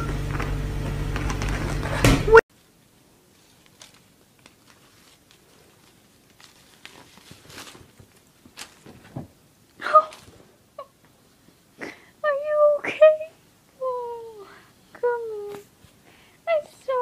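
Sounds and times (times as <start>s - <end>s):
cat rustling on fabric: 2.5s - 9.4s.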